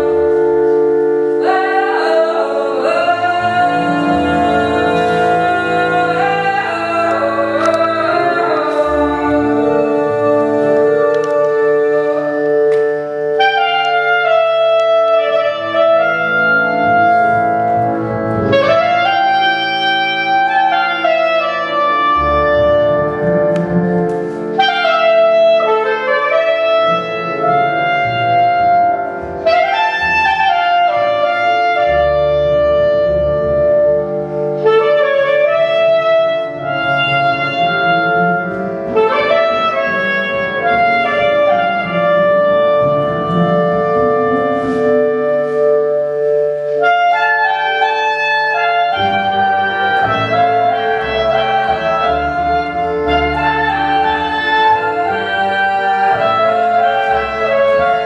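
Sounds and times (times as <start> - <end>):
clarinet playing upward runs: 0.0 - 58.0
double bass low notes: 0.0 - 58.0
harmonium chords: 0.0 - 58.0.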